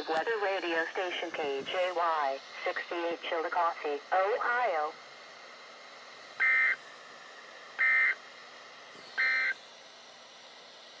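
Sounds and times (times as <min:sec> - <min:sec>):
faint radio hiss: 0:00.0 - 0:09.6
warbling data tone bursts: 0:06.4 - 0:06.8, 0:07.8 - 0:08.2, 0:09.2 - 0:09.6.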